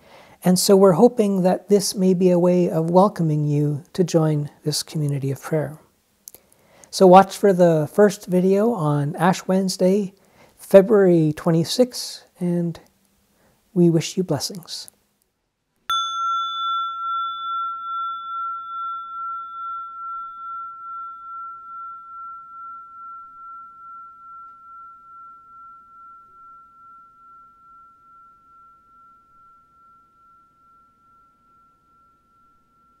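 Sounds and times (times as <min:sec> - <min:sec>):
bell ringing: 0:15.9 - 0:33.0.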